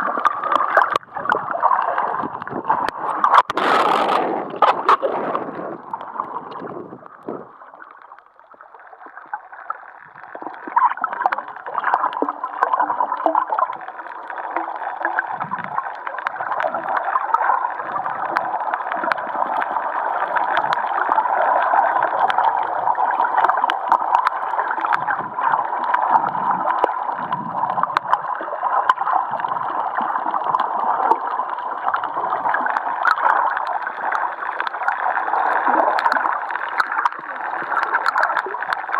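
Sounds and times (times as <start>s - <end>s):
low gurgles: 0.0s - 38.9s
surface splashing: 0.4s - 7.6s.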